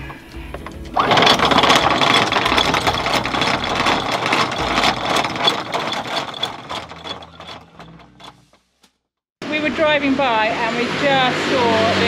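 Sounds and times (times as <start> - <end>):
anchor chain rattling: 0.0 - 8.6
electric anchor windlass running: 0.0 - 8.6.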